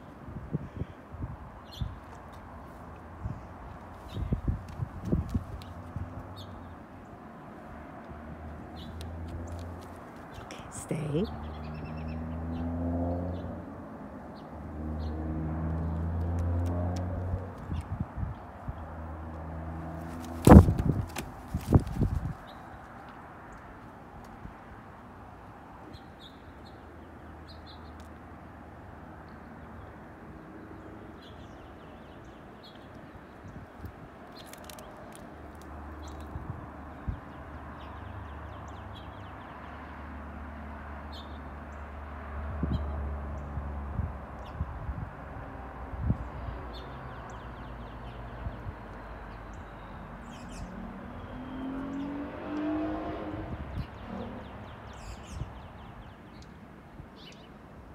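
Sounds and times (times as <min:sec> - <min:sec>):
wind: 0:00.0 - 0:57.9
wind buffeting microphone: 0:00.1 - 0:06.8, 0:17.1 - 0:18.9, 0:20.2 - 0:22.9, 0:43.6 - 0:46.4, 0:53.3 - 0:56.1
small birds chirping: 0:01.6 - 0:07.3, 0:08.5 - 0:12.7, 0:20.0 - 0:23.9, 0:46.7 - 0:52.8, 0:53.6 - 0:57.6
vehicle engine accelerating: 0:11.2 - 0:13.8, 0:14.6 - 0:17.8, 0:50.5 - 0:54.7.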